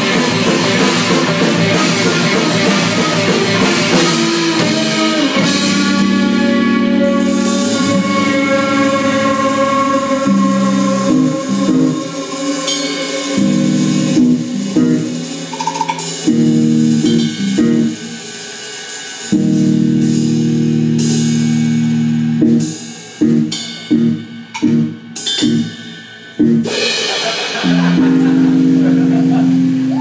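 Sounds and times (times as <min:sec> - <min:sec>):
rock band playing: 0:00.0 - 0:30.0
cymbal crashes: 0:07.2 - 0:19.4, 0:22.7 - 0:28.9.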